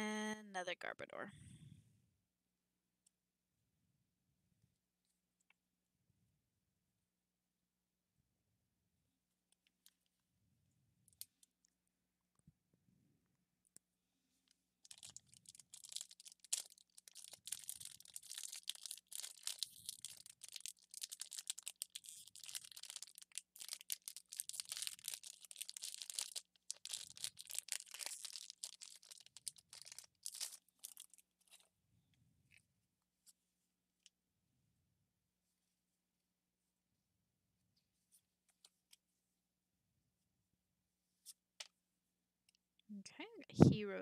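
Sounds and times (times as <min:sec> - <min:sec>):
foil wrapper crinkling and tearing: 0:14.8 - 0:31.2.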